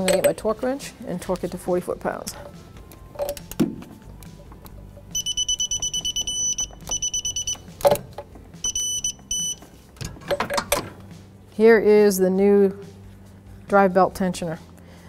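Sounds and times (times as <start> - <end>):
torque wrench electronic beeps: 5.1 - 8.0, 8.6 - 9.6.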